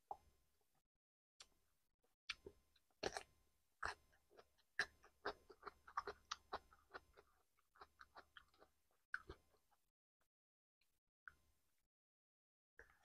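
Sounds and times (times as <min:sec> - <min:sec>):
chewing crisp vegetable crunches: 0:02.3 - 0:09.7.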